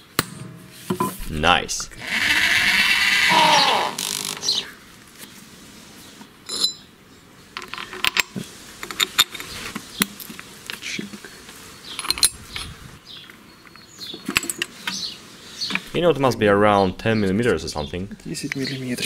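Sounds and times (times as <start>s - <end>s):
metal parts clicking and clinking: 11.9s - 12.8s.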